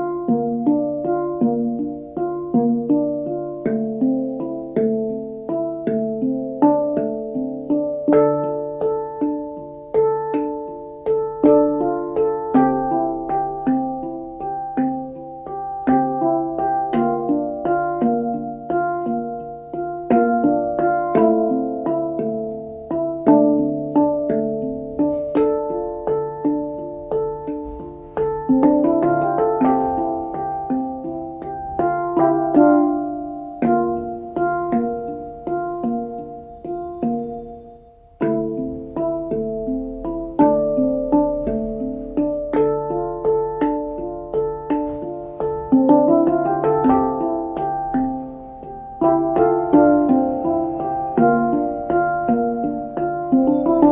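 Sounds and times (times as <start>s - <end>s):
handpan melody: 0.0s - 53.9s.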